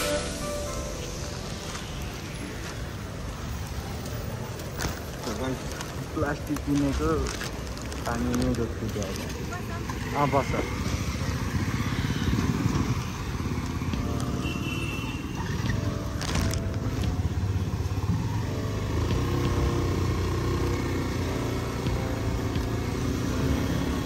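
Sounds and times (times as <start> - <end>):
traffic rumble: 0.0 - 24.0
motorcycle engine running: 9.5 - 14.6, 17.1 - 24.0.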